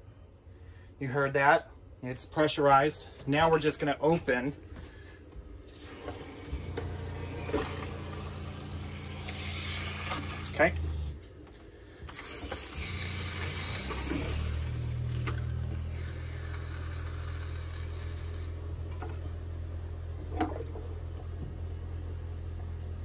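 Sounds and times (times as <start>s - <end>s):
liquid rushing from a faucet: 5.7s - 10.8s, 12.1s - 19.1s
water pump humming: 5.7s - 23.0s.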